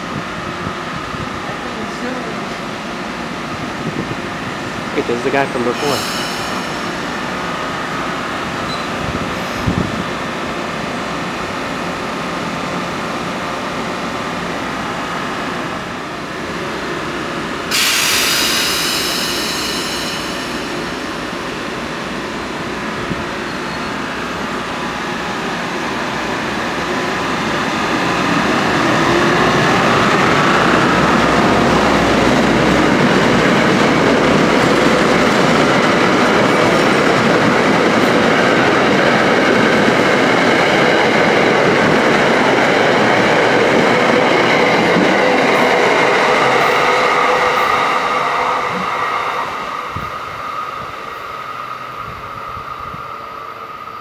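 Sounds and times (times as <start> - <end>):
train rumbling past: 0.0 - 54.0
sharp hiss with ringing tones: 5.7 - 7.3, 17.7 - 21.3.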